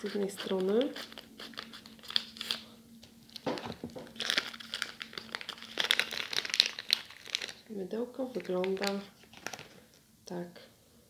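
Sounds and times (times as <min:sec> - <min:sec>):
scissors snipping wrapper: 0:00.4 - 0:02.6, 0:03.4 - 0:07.6, 0:08.3 - 0:09.7
wrapper crinkling and tearing: 0:00.6 - 0:10.0.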